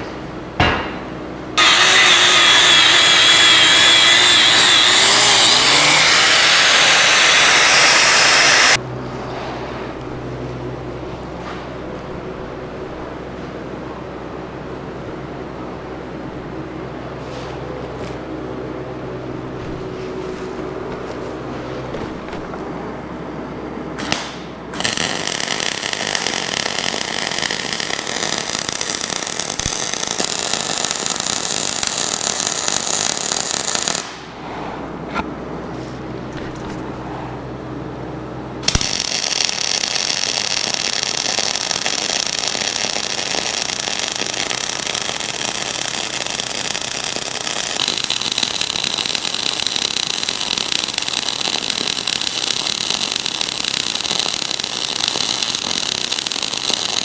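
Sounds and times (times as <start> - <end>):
welding arc crackling: 1.6 - 8.8, 24.0 - 34.3, 38.6 - 57.0.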